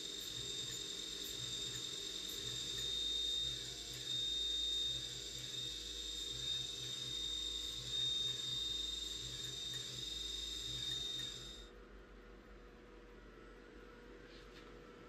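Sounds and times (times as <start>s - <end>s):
drill cutting metal: 0.0s - 11.7s
milling spindle high whine: 0.0s - 11.7s
low machine hum pulsing: 0.0s - 15.0s.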